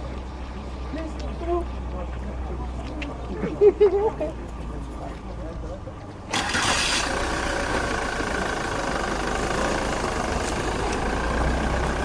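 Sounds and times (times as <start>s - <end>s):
van engine idling: 4.4s - 12.0s.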